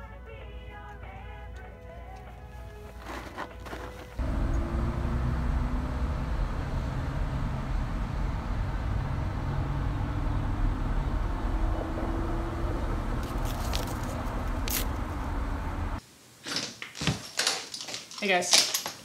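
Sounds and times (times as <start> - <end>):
street traffic rumble: 1.0 - 16.0
paper rustling and ripping: 2.9 - 4.2, 13.2 - 14.9.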